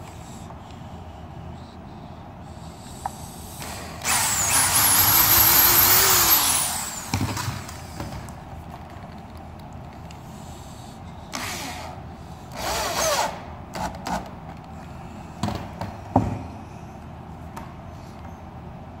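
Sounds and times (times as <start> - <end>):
power drill driving screw into wood: 3.6 - 7.9, 11.3 - 11.9, 12.6 - 13.9.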